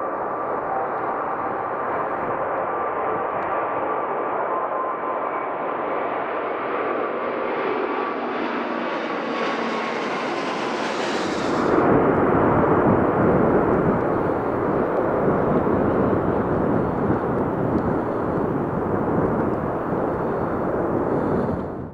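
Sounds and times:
jet airliner climbing overhead: 0.0 - 21.9.

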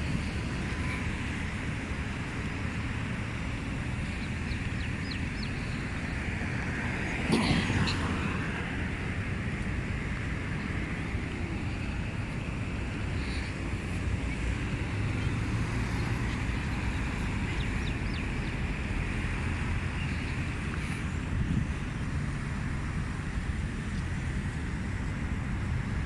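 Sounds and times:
road traffic rumble: 0.0 - 26.0
wind on microphone: 16.2 - 26.0.

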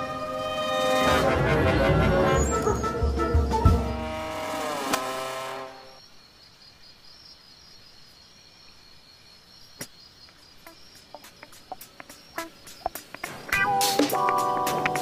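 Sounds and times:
held horn-like music note: 0.0 - 5.9
crickets chirring: 5.0 - 15.0.

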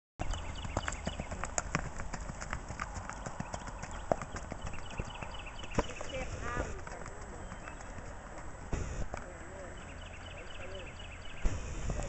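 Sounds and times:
horse hoofbeats on dirt: 0.2 - 10.5.

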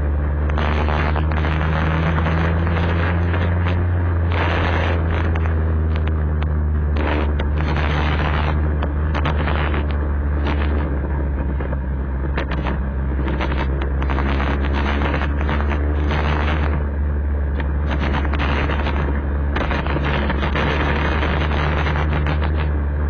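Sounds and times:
road bumps: 0.0 - 23.0
scooter engine droning: 0.0 - 23.0
wind buffeting microphone: 0.0 - 23.0.

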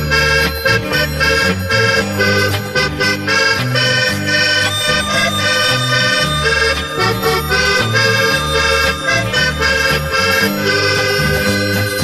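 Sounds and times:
accordion orchestra playing pop tune: 0.0 - 12.0.

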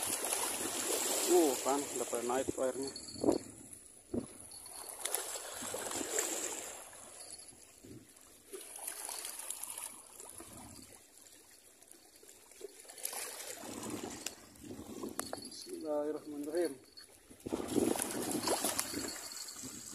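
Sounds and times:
waves washing over rocks: 0.0 - 2.3.

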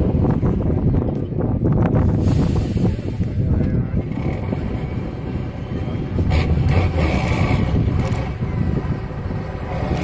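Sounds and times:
truck engine working under load: 2.0 - 10.0.

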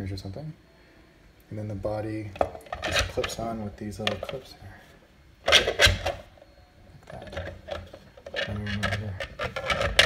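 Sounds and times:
plastic shell clattering and scraping: 2.4 - 4.5, 5.4 - 6.3, 7.1 - 10.0.

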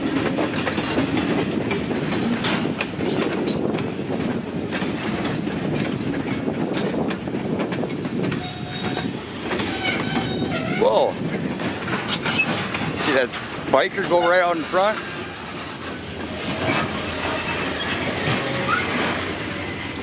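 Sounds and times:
train wheels clacking over rail joints: 0.0 - 20.0
train braking: 8.3 - 11.1, 12.0 - 20.0.

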